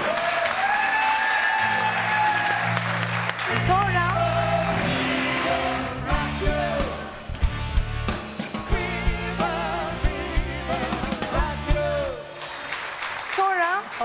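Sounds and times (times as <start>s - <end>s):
band playing live: 1.5s - 12.8s
person singing: 3.6s - 7.3s, 8.7s - 12.5s.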